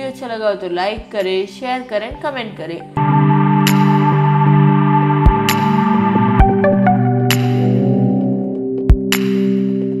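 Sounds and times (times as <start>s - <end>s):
sustained synthesizer chords: 3.0s - 8.9s.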